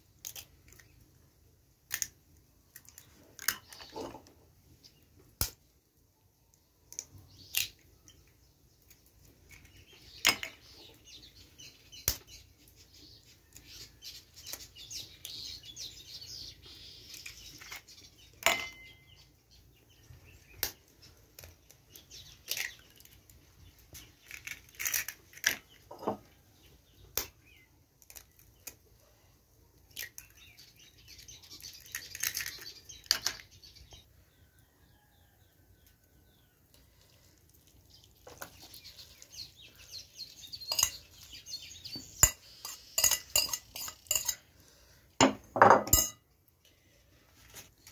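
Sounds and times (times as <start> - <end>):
eggshell crackling: 0.0 - 4.4, 6.5 - 10.7, 20.4 - 29.1, 29.7 - 34.0, 36.5 - 44.8
fork scraping a plate: 42.2 - 44.5.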